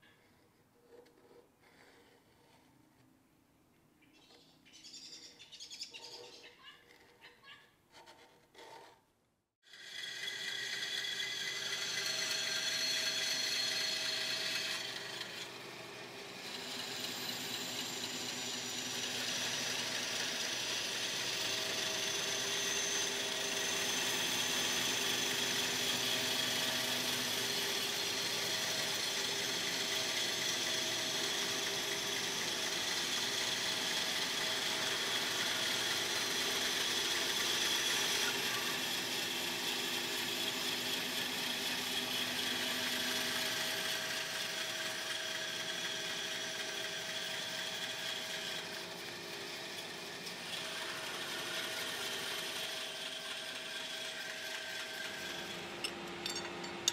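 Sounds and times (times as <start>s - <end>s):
band saw cutting metal: 9.6s - 56.9s.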